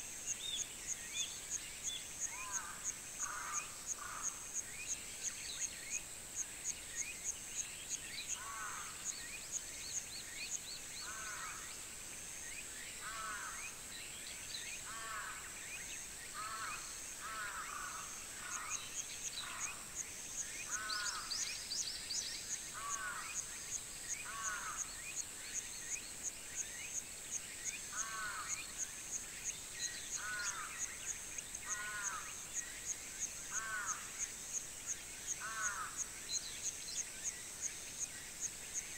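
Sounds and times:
insects buzzing and chirping: 0:00.0 - 0:38.9.

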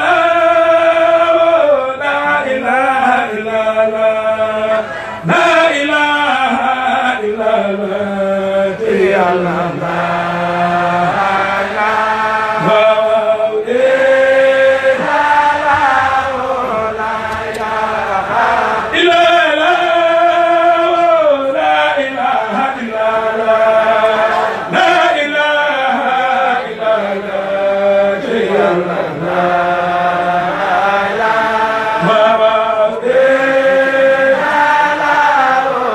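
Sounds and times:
man chanting through a microphone: 0:00.0 - 0:30.6, 0:31.4 - 0:34.3.

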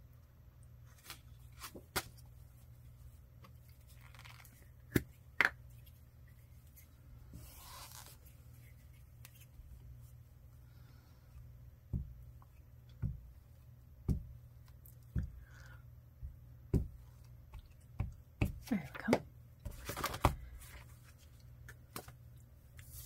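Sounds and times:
paper rustling: 0:19.7 - 0:21.3.

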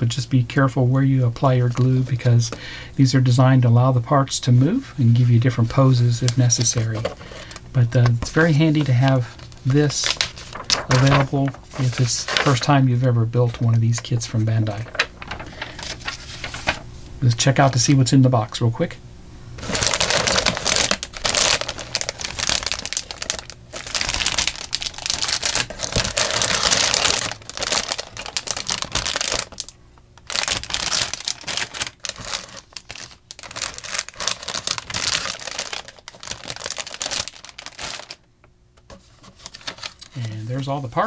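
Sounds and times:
plastic bags crinkling: 0:06.2 - 0:12.8, 0:14.7 - 0:16.8, 0:19.6 - 0:38.3, 0:38.9 - 0:41.0.

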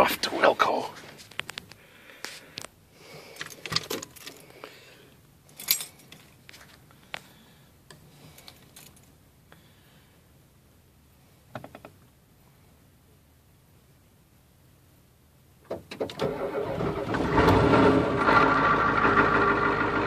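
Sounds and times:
keys jingling and clicking: 0:05.6 - 0:06.2.

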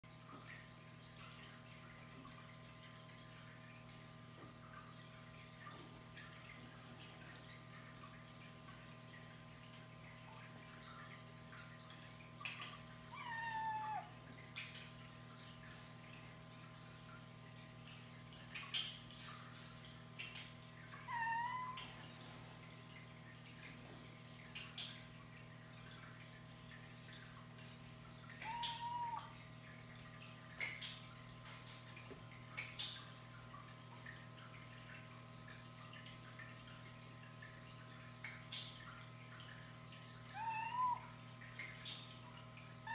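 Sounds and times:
faint steady hum: 0:00.1 - 0:42.9
cat meowing: 0:13.2 - 0:14.1, 0:21.1 - 0:21.9, 0:28.4 - 0:29.3, 0:40.3 - 0:41.1.

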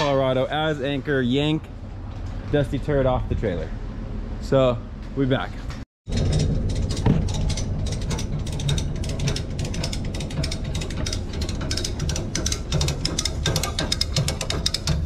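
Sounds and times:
ratchet strap pawl clicking: 0:06.8 - 0:15.0.

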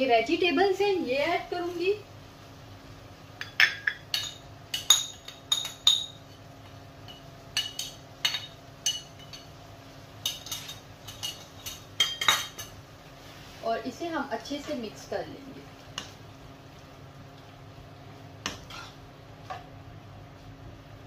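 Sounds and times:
bowl clinking on frying pan: 0:03.4 - 0:06.3.

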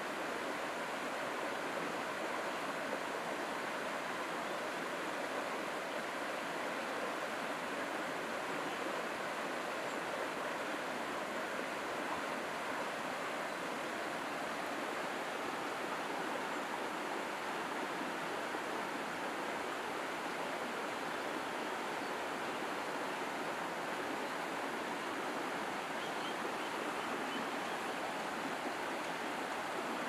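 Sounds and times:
running water rushing: 0:00.0 - 0:30.0.

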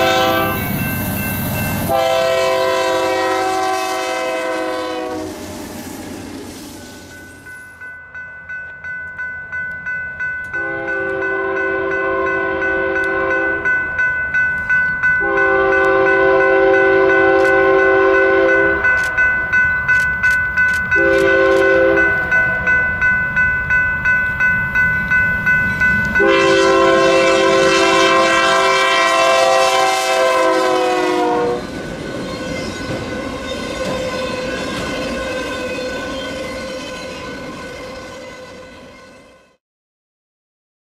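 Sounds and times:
locomotive air horn blasts: 0:00.0 - 0:00.8, 0:01.9 - 0:05.4, 0:10.6 - 0:13.7, 0:15.2 - 0:18.9, 0:21.0 - 0:22.2, 0:26.2 - 0:31.7
train wheels clattering on rails: 0:31.6 - 0:38.3.

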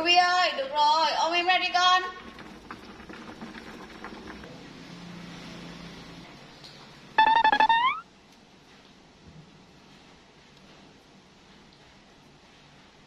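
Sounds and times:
monkey squealing: 0:07.2 - 0:08.0.

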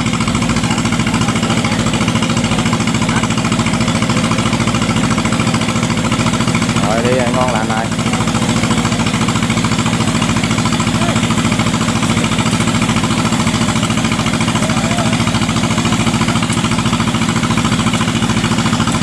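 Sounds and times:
small engine chugging: 0:00.0 - 0:19.0.

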